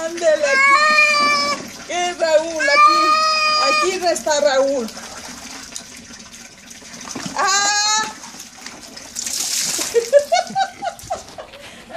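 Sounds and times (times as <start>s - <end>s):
water splashing from a basin: 0.0s - 11.9s
cat meowing: 0.4s - 1.6s, 2.6s - 3.8s.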